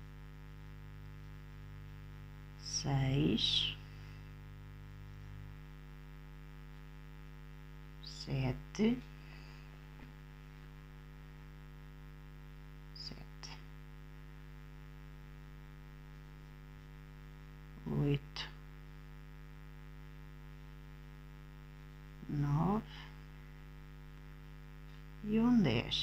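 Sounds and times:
electrical mains hum: 0.0 - 26.0
person speaking a word: 2.6 - 3.9, 8.0 - 9.0, 13.0 - 13.7, 17.8 - 18.6, 22.2 - 23.2, 25.2 - 26.0.

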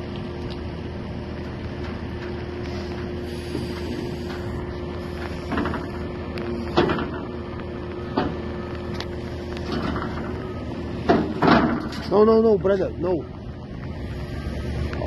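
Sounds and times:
diesel engine running: 0.0 - 15.0
metal knocks and clanks: 5.5 - 6.0, 6.7 - 7.3, 8.1 - 8.4, 9.6 - 10.4, 11.0 - 12.3.

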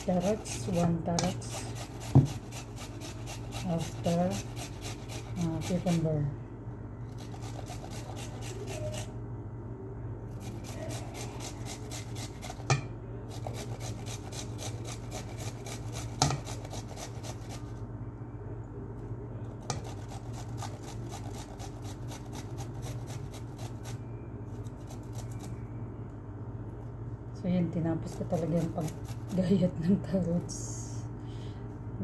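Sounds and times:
kitchen utensil scraping food: 0.0 - 6.1
steady low hum: 0.0 - 32.0.

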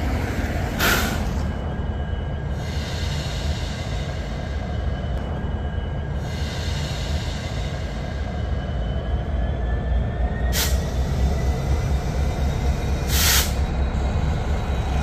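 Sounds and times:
diesel locomotive rumbling: 0.0 - 15.0
short air hisses: 0.8 - 1.2, 13.1 - 13.6.

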